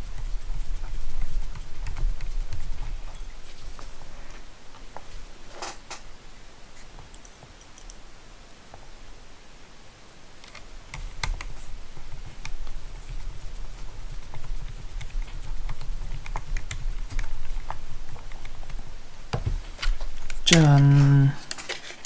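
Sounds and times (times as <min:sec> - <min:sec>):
light clicks and taps of small parts: 0:07.0 - 0:08.0.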